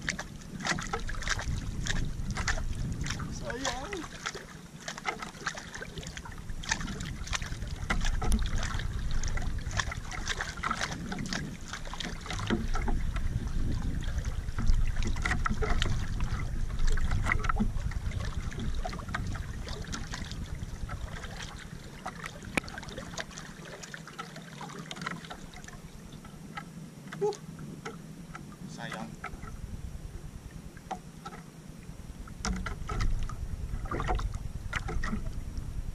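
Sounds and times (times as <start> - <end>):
wind rumble on microphone: 0.0 - 23.9, 24.6 - 35.9
water lapping and splashing: 0.0 - 35.9.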